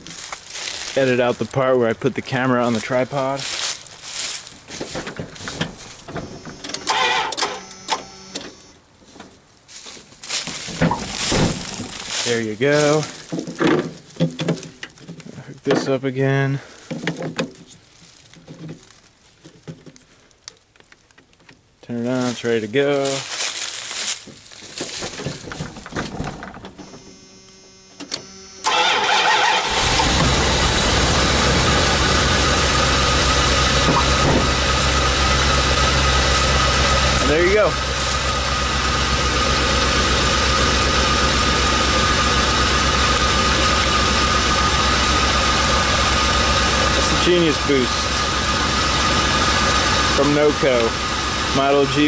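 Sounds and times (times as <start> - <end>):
footsteps in dry leaves: 0.0 - 6.1, 9.0 - 14.2, 17.6 - 19.4, 22.1 - 25.6, 32.5 - 39.9
van engine cranking and idling: 0.0 - 8.8, 10.3 - 15.3, 25.0 - 52.0
starter motor whirring: 6.0 - 8.7, 26.8 - 51.6.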